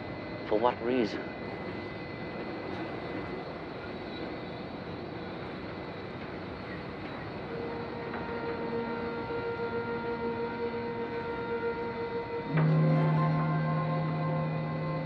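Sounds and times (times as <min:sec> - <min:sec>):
ship engine drone: 0:06.7 - 0:15.0
sustained music note: 0:07.5 - 0:15.0.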